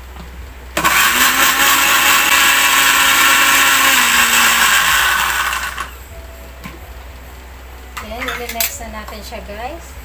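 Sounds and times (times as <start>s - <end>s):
blender grinding: 0.8s - 5.9s.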